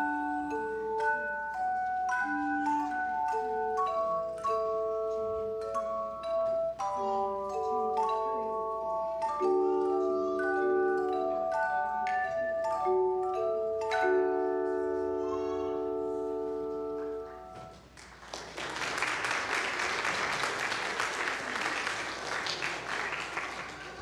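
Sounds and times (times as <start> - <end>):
handbells ringing chords: 0.0 - 17.7
congregation applauding: 17.8 - 24.0.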